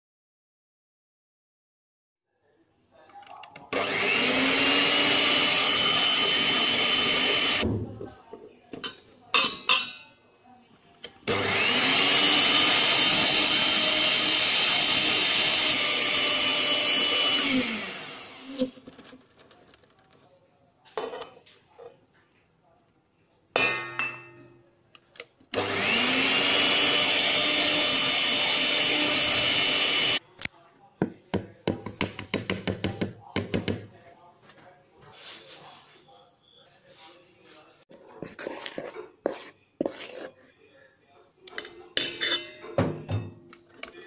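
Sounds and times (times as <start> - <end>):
electric hand mixer whining: 3.7 - 7.6, 11.3 - 18.8, 25.6 - 30.2.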